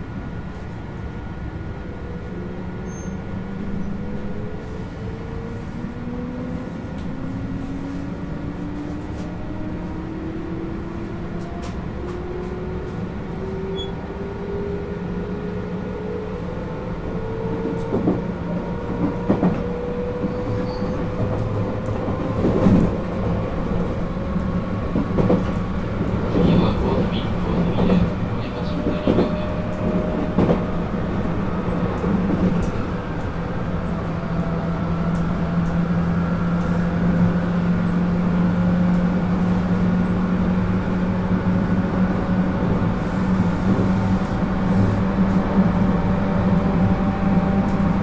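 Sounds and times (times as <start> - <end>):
rail-joint clacks and rattles: 11.0 - 14.0, 17.2 - 35.9.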